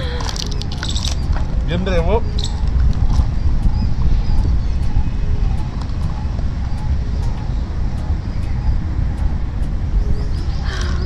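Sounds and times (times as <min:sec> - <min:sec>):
steady low rumble: 0:00.0 - 0:11.0
faint high ticks: 0:02.4 - 0:11.0.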